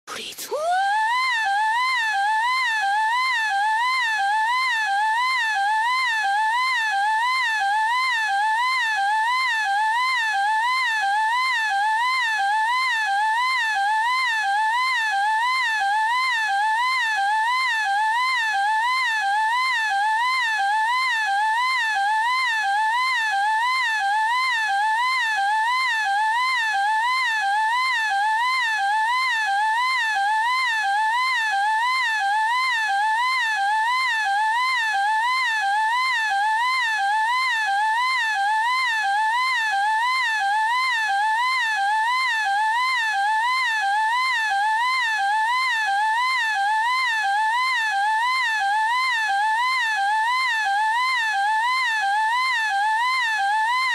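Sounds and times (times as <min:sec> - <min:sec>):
girl's high-pitched wavering squeal: 0:00.1 - 0:04.8.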